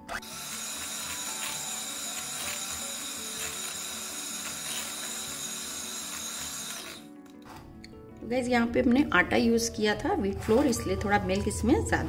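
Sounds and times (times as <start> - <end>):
electric hand beater whisking: 0.0 - 7.1.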